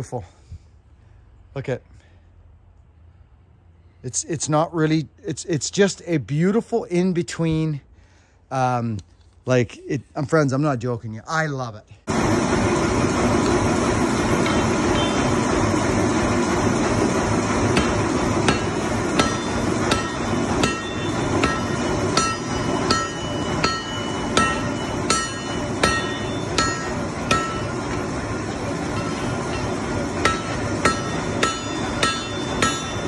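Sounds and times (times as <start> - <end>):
hammer striking metal on anvil: 17.7 - 28.0, 28.8 - 33.0.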